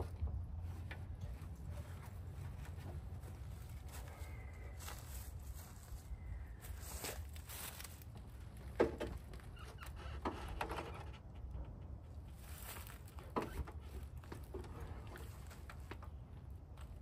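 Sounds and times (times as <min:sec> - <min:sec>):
low steady hum: 0:00.0 - 0:17.0
light knocks and clunks: 0:08.6 - 0:12.3.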